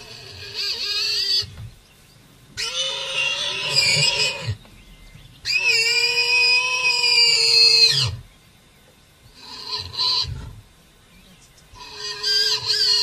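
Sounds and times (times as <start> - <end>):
warthog squealing: 2.6 - 4.6, 5.5 - 8.2, 11.8 - 13.0.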